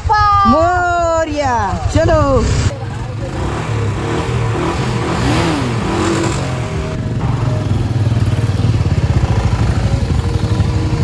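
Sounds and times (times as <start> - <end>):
motorcycle pulling away: 2.6 - 11.0.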